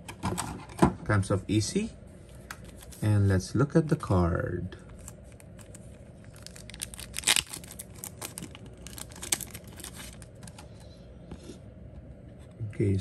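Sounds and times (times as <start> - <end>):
plastic bag rustling and crackling: 5.0 - 10.6.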